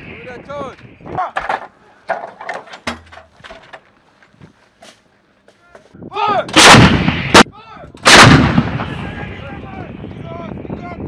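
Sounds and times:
sharp crack: 6.5s - 9.0s
howitzer blast: 6.5s - 10.2s.

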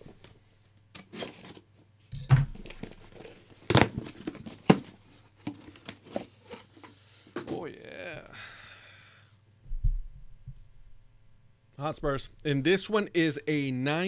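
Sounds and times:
cardboard tearing and crinkling: 1.0s - 1.6s, 2.5s - 6.6s.

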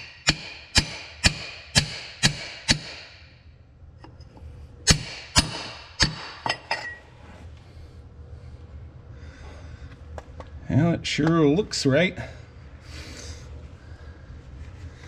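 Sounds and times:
sledgehammer striking metal: 0.0s - 3.4s, 4.8s - 7.0s.

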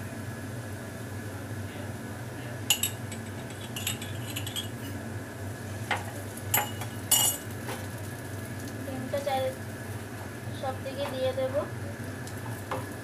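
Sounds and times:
spoon and glass clinking: 2.7s - 5.0s, 6.5s - 7.4s.

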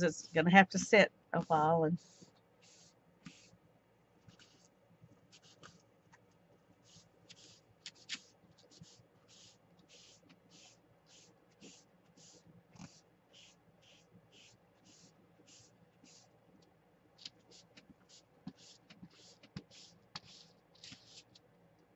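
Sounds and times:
sponge rubbing on paper: 1.4s - 3.6s, 4.3s - 4.7s, 5.3s - 5.8s, 6.8s - 16.3s, 17.3s - 21.4s.

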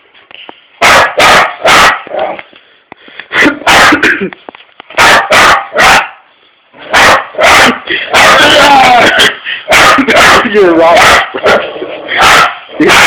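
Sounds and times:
dog barking loudly: 0.8s - 2.4s, 3.6s - 4.2s, 4.9s - 13.0s.

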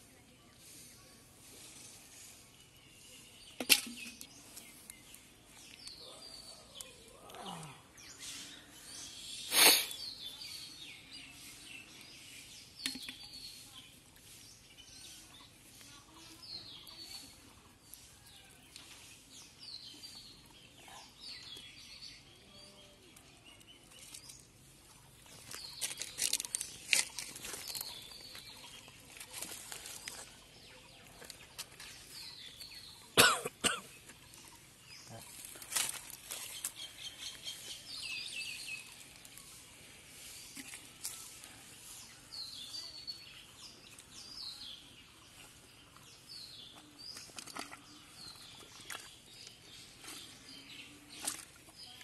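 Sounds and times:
bird chirping: 19.1s - 52.0s.

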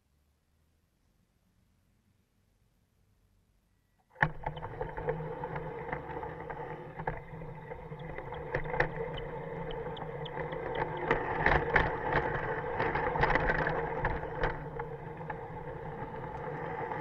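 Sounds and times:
model train motor whine: 4.2s - 17.0s
wheels clicking over rail joints: 4.2s - 17.0s.

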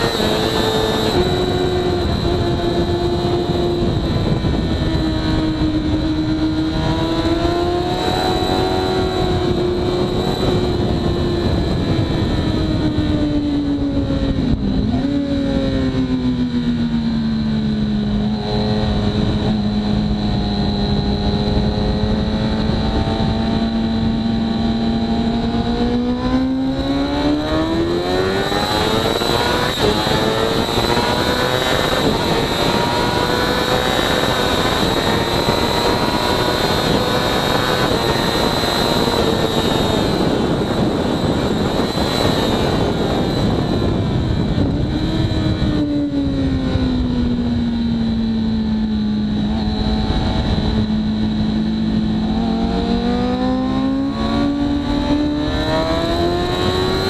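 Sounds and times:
motorcycle engine revving: 0.0s - 57.0s
wind rushing: 18.1s - 48.4s.

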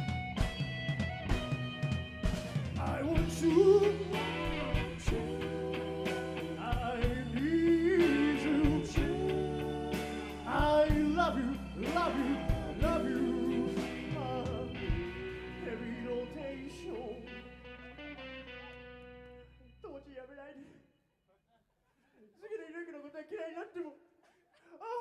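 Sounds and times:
drum kit beat: 0.0s - 15.6s
electric guitars: 0.0s - 19.7s
keyboard: 0.0s - 20.2s
person singing lead vocal: 2.8s - 17.4s.

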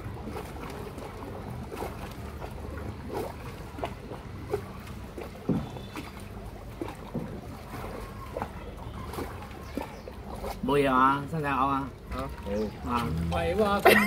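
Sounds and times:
water lapping at boat hull: 0.0s - 14.0s
light knocks: 5.4s - 5.8s.

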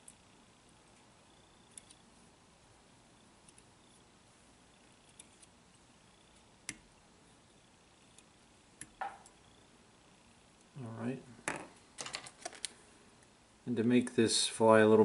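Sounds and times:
small ticks: 0.9s - 2.0s, 3.4s - 3.7s, 4.7s - 6.9s, 8.0s - 9.5s.

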